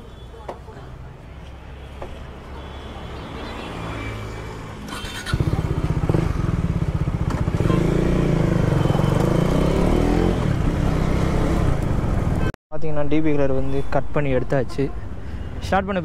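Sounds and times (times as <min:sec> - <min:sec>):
motorcycle engine revving: 0:04.6 - 0:12.5.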